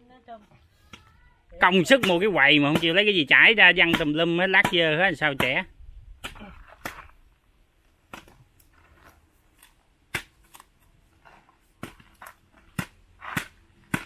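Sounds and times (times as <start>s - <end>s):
machete chopping palm fruit husks: 1.8s - 3.1s, 3.7s - 5.6s, 6.2s - 7.2s, 8.0s - 8.4s, 9.5s - 14.0s.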